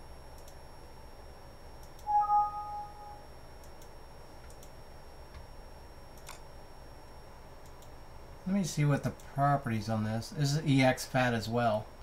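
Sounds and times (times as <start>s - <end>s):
low room noise: 0.0s - 12.0s
computer mouse clicks: 0.4s - 0.6s, 3.6s - 4.7s, 6.2s - 6.4s, 7.6s - 7.9s
two-tone electronic beep: 2.1s - 3.2s.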